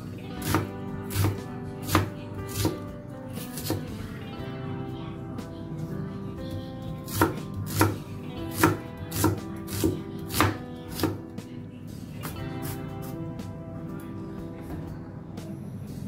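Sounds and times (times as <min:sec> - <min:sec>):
knife chopping on cutting board: 0:00.4 - 0:02.8, 0:03.4 - 0:03.9, 0:07.1 - 0:11.2.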